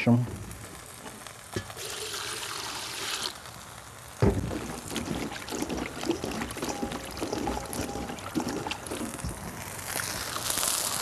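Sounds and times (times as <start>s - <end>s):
water pouring into a pot: 1.6s - 11.0s
beans washed in water splashing: 4.4s - 9.2s.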